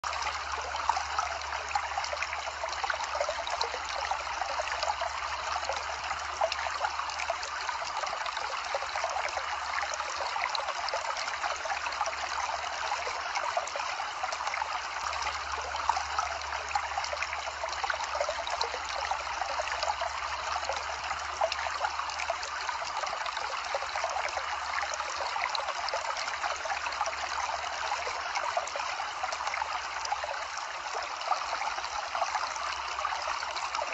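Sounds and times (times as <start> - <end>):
running water: 0.0 - 33.9.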